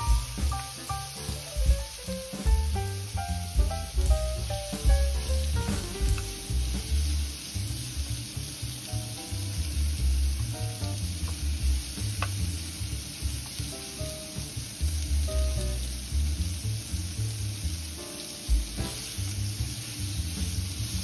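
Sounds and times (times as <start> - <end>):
meat sizzling in a frying pan: 0.0 - 21.0
tongs stirring in a pan: 5.5 - 14.8.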